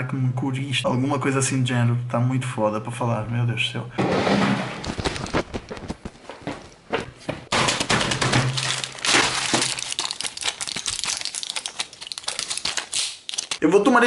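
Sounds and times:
blister pack crinkling: 7.5s - 13.6s.

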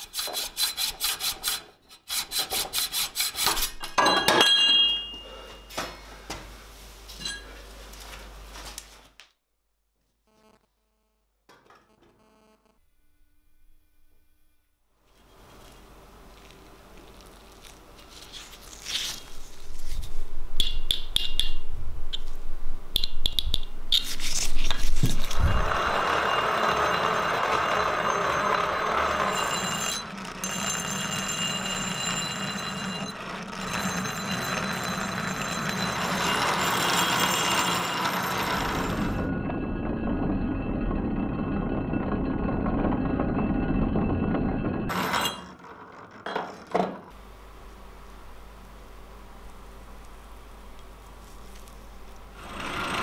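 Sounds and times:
axe grinding on grinding wheel: 0.0s - 4.0s, 24.0s - 47.2s, 52.3s - 53.0s.

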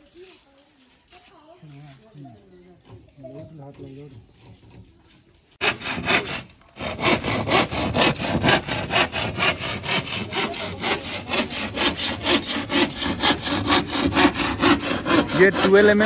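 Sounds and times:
hand saw cutting plywood: 5.6s - 16.0s.

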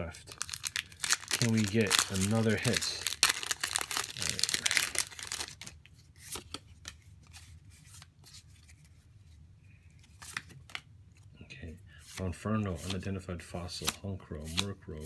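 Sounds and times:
foil wrapper crinkling and tearing: 0.2s - 5.8s.

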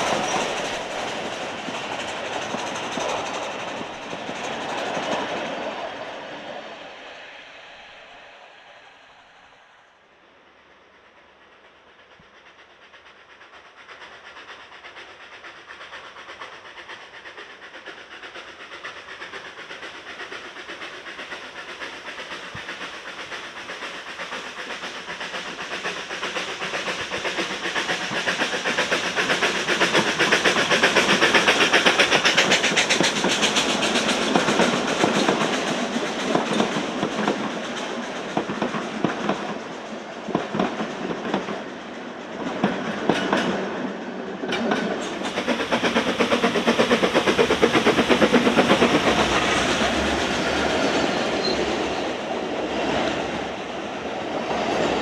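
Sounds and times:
steam locomotive passing: 0.0s - 55.0s
wheels clattering on rails: 14.8s - 41.6s, 42.2s - 53.6s.

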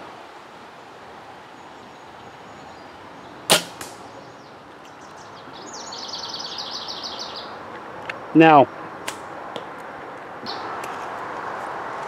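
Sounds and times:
birds chirping: 0.7s - 9.4s, 10.4s - 10.8s
arrow hitting target: 3.5s - 4.0s
bowstring snap: 3.5s - 4.0s.

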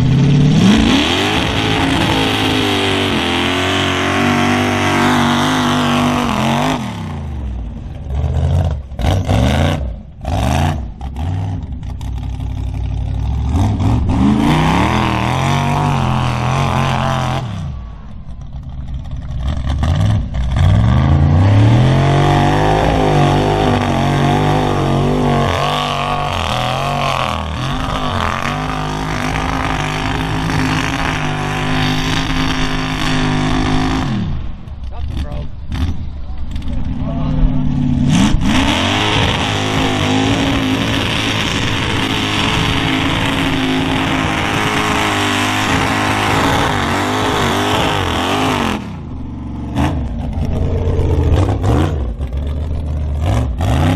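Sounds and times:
truck engine revving in mud: 0.0s - 53.9s.

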